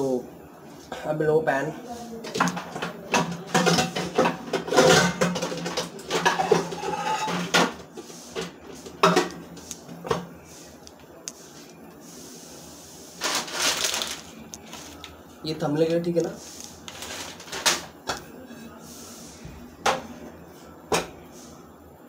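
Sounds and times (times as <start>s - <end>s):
metal pots and pans clattering: 2.3s - 7.8s.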